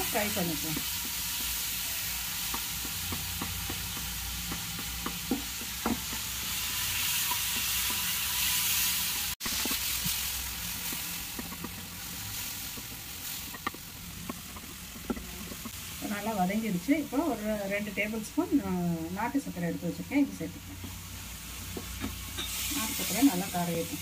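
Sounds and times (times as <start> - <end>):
banana frying in a pan: 0.0 - 24.0
wooden spatula knocking on pan: 2.4 - 6.4, 12.7 - 15.7.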